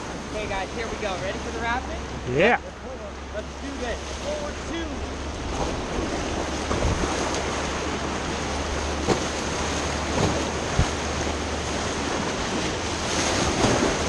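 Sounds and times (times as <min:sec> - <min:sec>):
whitewater rushing: 0:00.0 - 0:14.0
wind buffeting microphone: 0:04.3 - 0:14.0.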